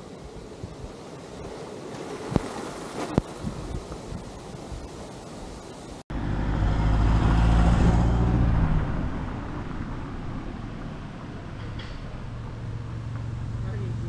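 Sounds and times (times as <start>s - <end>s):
wind on microphone: 0.0s - 6.0s
motor vehicle passing by: 6.1s - 14.0s.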